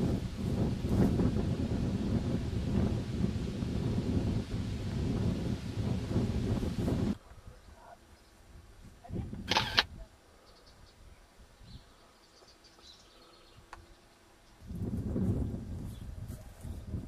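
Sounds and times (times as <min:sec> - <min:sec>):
wind rumble on microphone: 0:00.0 - 0:07.9, 0:08.5 - 0:10.2, 0:14.5 - 0:17.0
camera handling noise: 0:09.4 - 0:09.9.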